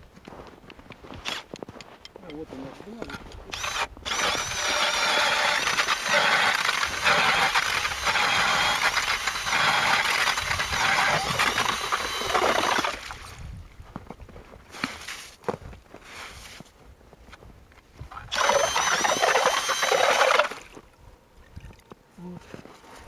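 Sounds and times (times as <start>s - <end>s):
drill motor whining: 3.5s - 13.1s, 18.3s - 20.6s
auger grinding through ice: 3.5s - 13.3s, 18.3s - 20.7s.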